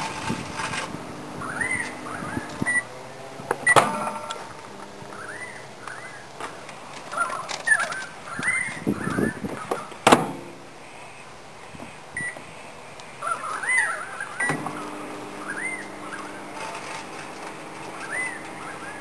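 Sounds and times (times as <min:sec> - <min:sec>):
microwave humming: 0:00.0 - 0:05.6, 0:14.4 - 0:19.0
birds chirping: 0:00.0 - 0:19.0.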